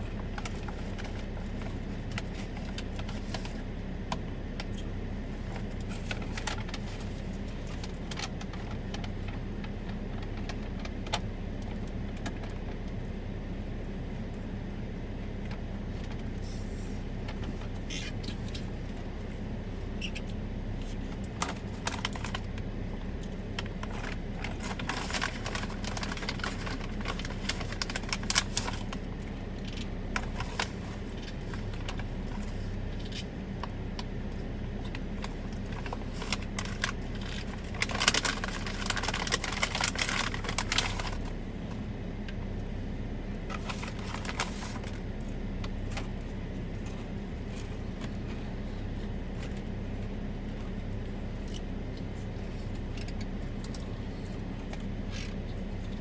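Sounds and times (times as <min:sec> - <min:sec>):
car engine idling: 0:00.0 - 0:56.0.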